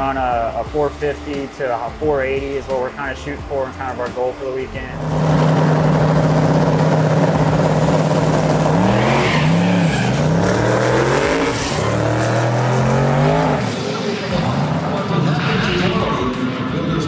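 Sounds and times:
drag car engine revving: 0:04.8 - 0:17.0.

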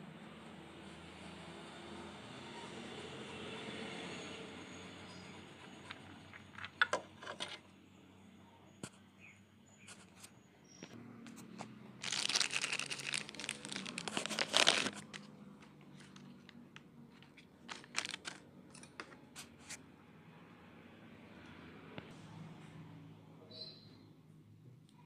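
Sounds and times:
plastic wrapping crinkling: 0:12.0 - 0:16.6, 0:17.2 - 0:18.4.

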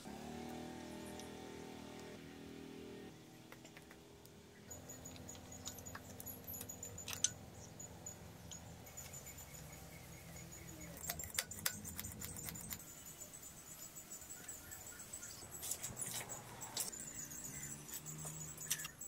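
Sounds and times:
metallic clicks of tools: 0:04.8 - 0:07.4.

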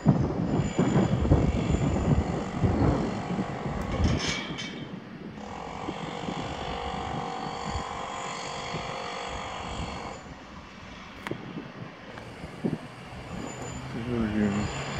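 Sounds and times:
train wheel screech: 0:00.0 - 0:10.4, 0:12.2 - 0:14.9
electric locomotive whine: 0:00.0 - 0:14.9
train rumbling over rails: 0:12.0 - 0:14.9.

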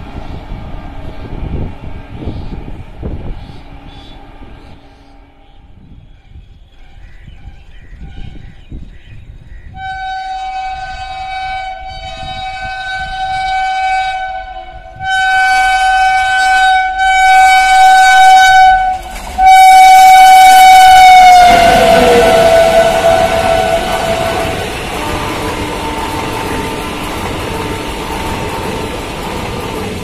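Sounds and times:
locomotive horn blasts: 0:09.8 - 0:29.8.

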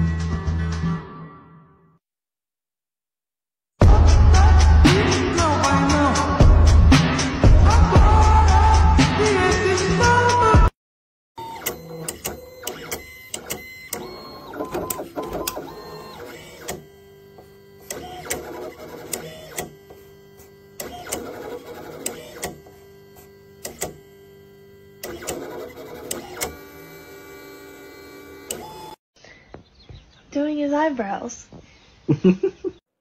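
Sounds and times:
sharp clicks: 0:11.4 - 0:16.9, 0:23.6 - 0:24.0, 0:25.0 - 0:26.6, 0:28.4 - 0:29.0
plotter motors whining: 0:11.4 - 0:29.0.

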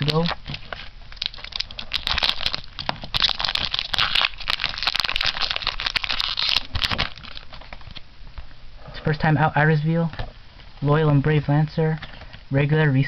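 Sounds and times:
foil wrapper crinkling: 0:00.0 - 0:08.0.

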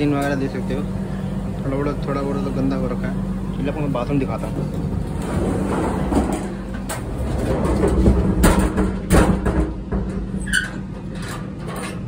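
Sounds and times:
low hum inside train coach: 0:00.0 - 0:12.0
door knocking and clattering: 0:07.5 - 0:10.3.

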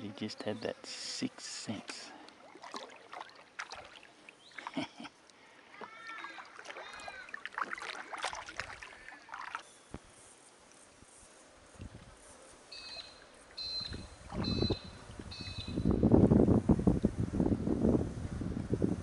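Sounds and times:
paddle knocks and splashes: 0:05.8 - 0:09.6.

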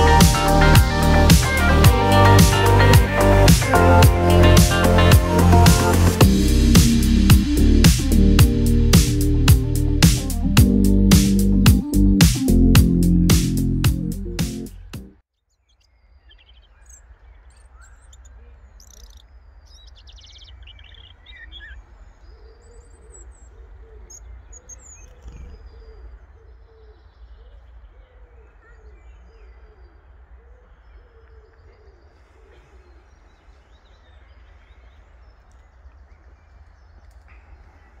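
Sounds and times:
steady low rumble: 0:00.0 - 0:14.4
background music: 0:00.0 - 0:15.2
birds chirping and warbling: 0:15.4 - 0:38.0
low cooing calls: 0:20.9 - 0:38.0.

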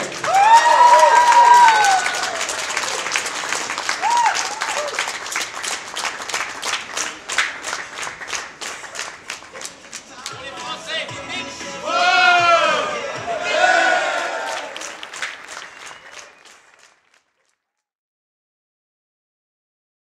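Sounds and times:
crowd clapping in unison: 0:00.0 - 0:11.1, 0:13.4 - 0:17.6.

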